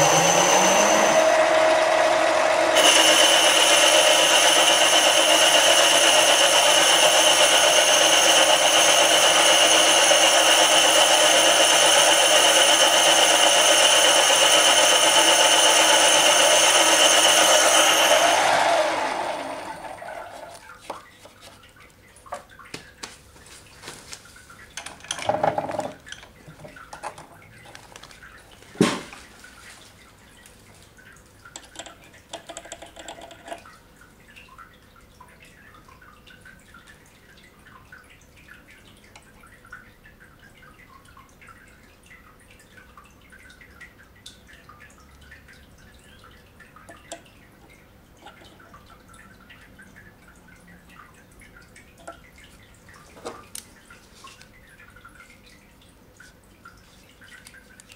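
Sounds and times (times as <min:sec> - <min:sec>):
lathe motor whining: 0:00.0 - 0:20.6.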